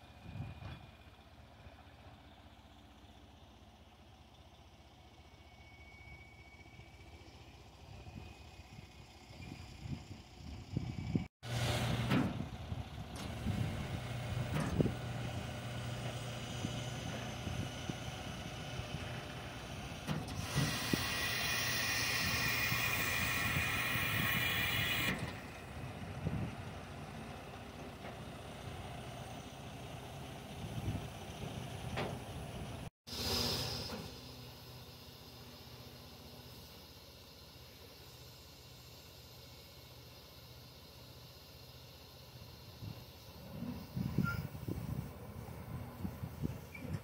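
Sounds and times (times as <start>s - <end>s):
truck diesel engine running: 0.0s - 47.0s
air hissing: 20.3s - 25.3s.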